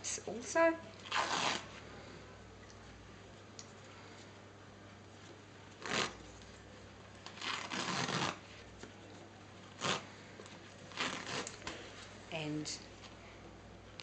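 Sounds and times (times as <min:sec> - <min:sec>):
bandage pulled off roll: 0:01.0 - 0:01.7, 0:07.2 - 0:09.0, 0:09.7 - 0:11.9.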